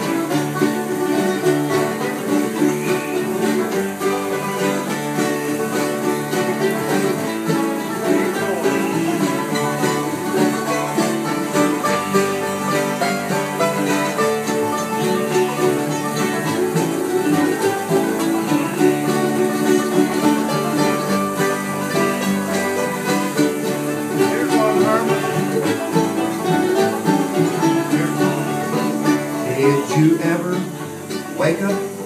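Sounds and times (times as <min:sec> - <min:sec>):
banjo: 0:00.0 - 0:32.0
strummed acoustic guitar: 0:00.0 - 0:32.0.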